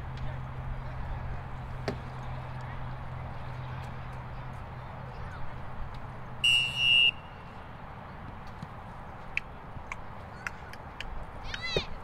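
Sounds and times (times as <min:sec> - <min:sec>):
referee's whistle blast: 0:06.4 - 0:07.2.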